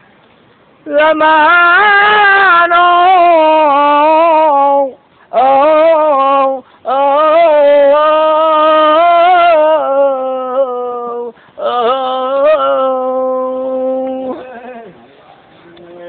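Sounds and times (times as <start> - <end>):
man singing unaccompanied: 0.8 - 15.0.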